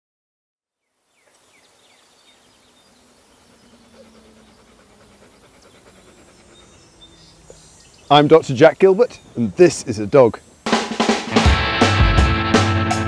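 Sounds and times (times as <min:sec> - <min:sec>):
faint chirps: 0:00.8 - 0:10.7
insects trilling: 0:00.8 - 0:11.3.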